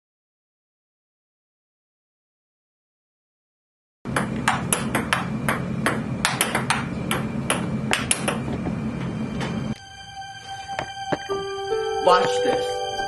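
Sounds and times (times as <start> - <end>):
ping-pong ball clicking: 4.1 - 8.4
low hum: 4.1 - 12.0.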